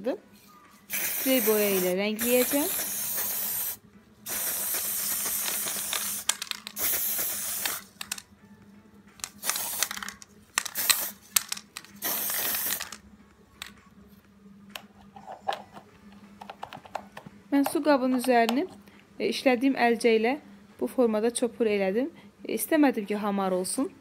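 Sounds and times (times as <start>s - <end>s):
spray paint can hissing: 0.9s - 8.2s, 9.2s - 13.0s.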